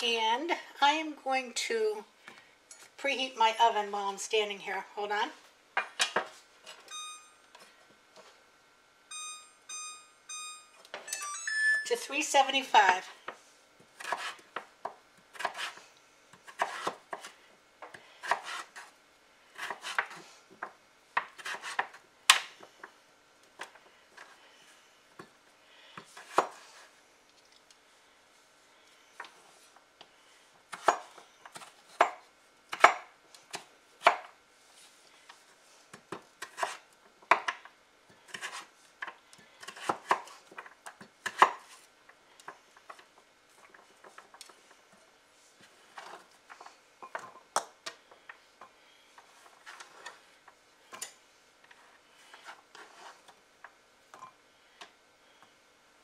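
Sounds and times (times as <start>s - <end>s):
knife chopping on wooden board: 14.0s - 14.4s, 15.4s - 15.8s, 16.4s - 18.9s.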